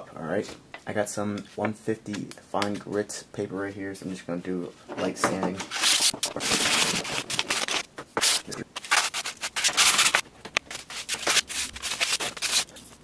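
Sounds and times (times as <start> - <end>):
sandpaper rubbing on plastic: 5.6 - 13.0.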